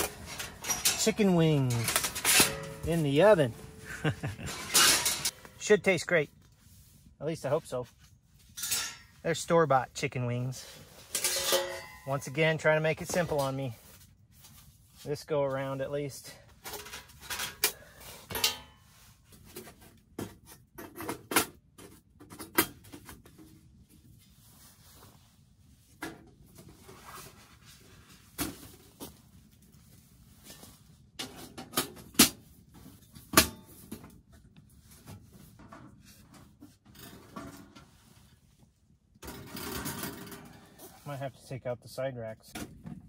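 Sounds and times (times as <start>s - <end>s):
metal oven panels clanking: 0.0s - 3.8s, 4.4s - 5.4s, 11.1s - 12.3s.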